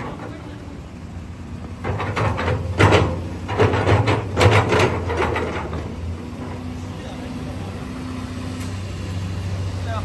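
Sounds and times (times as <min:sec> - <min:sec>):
excavator diesel engine humming: 0:00.0 - 0:10.0
sharp metal knocks and clanks: 0:01.8 - 0:06.6.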